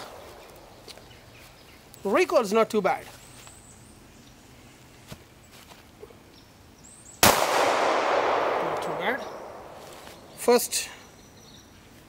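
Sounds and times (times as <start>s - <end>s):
pistol shot: 7.2s - 9.8s.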